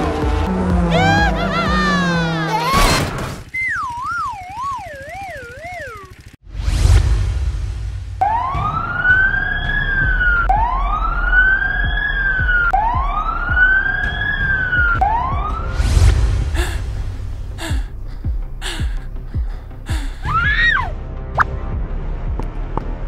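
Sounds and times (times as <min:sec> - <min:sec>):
low vehicle rumble: 0:00.0 - 0:21.2
ambulance siren wailing: 0:00.8 - 0:02.7, 0:03.6 - 0:06.1, 0:08.2 - 0:15.8.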